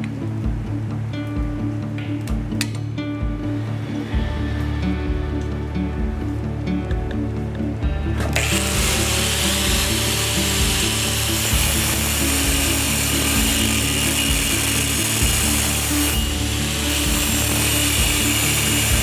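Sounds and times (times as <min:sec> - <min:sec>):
background music: 0:00.0 - 0:19.0
angle grinder cutting steel: 0:08.3 - 0:19.0.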